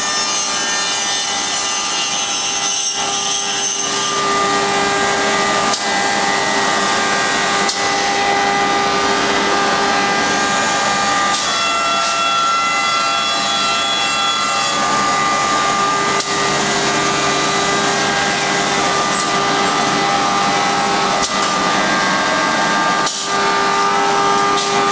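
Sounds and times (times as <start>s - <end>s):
router spindle whine: 0.0s - 24.9s
dust extraction rush: 14.7s - 24.9s.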